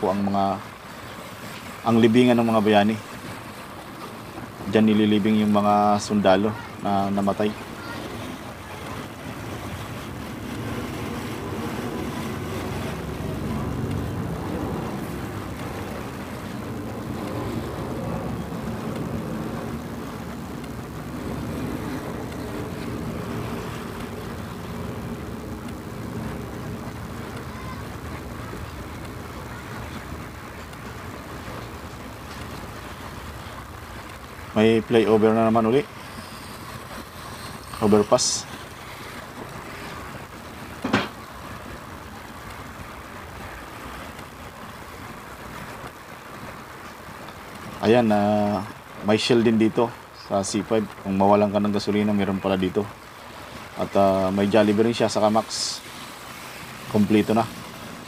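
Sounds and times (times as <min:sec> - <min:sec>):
wind: 0:00.0 - 0:58.0
motorcycle engine drone: 0:08.7 - 0:30.3.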